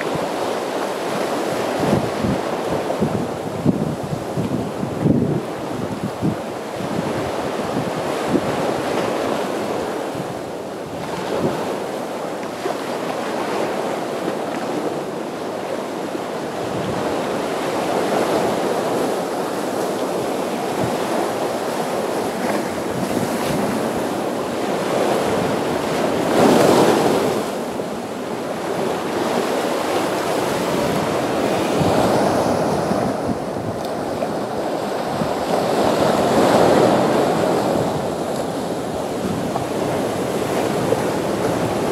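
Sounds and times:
surf breaking against rocks: 0:28.5 - 0:41.9.

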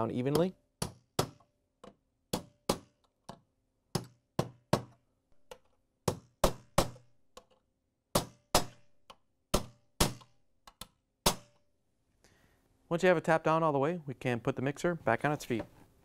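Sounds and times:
hammer tapping steel punch: 0:00.2 - 0:11.6.

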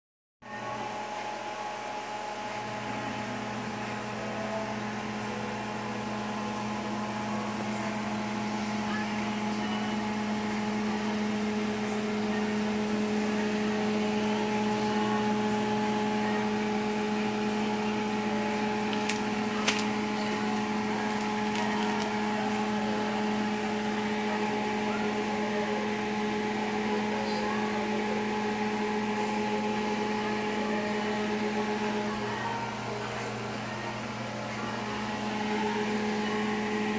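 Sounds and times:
appliance motor and fan hum: 0:00.4 - 0:36.9.

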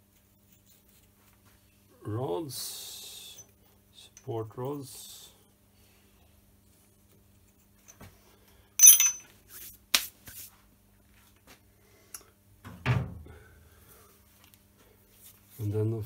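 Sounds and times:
ringing metal clatter: 0:08.8 - 0:09.2.

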